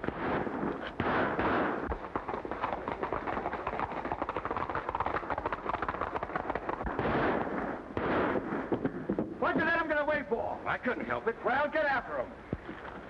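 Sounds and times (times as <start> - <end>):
revolver gunshots: 0.0 - 2.2, 6.8 - 9.0
galloping horse hoofbeats: 0.8 - 7.0.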